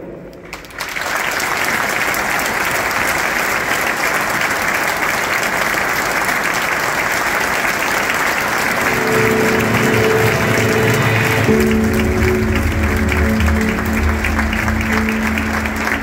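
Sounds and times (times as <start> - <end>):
stadium crowd applauding: 0.3 - 16.0
music: 8.6 - 16.0.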